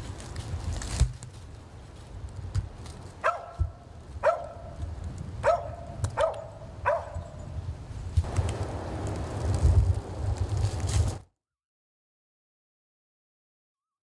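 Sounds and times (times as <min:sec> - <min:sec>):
dog barking: 0:03.2 - 0:04.8, 0:05.4 - 0:07.4.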